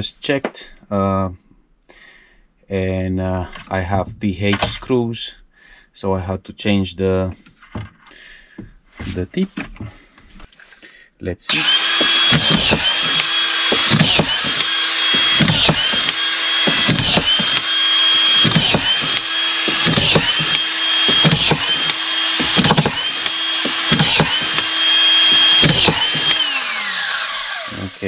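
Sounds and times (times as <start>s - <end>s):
screwdriver motor running: 11.5s - 28.0s
screwdriver click: 11.6s - 26.6s.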